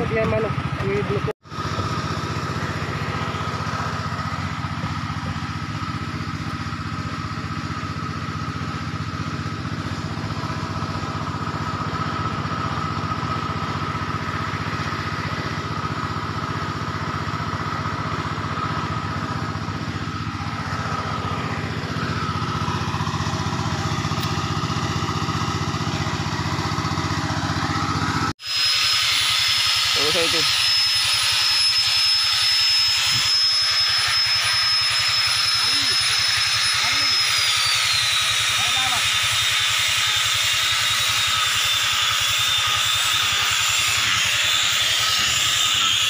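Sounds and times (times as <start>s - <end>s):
small engine humming with whine: 0.0s - 46.0s.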